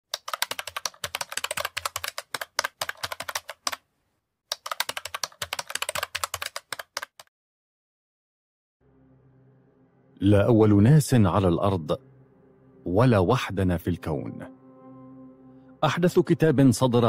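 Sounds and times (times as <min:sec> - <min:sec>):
keyboard typing: 0:00.1 - 0:03.8, 0:04.5 - 0:07.3.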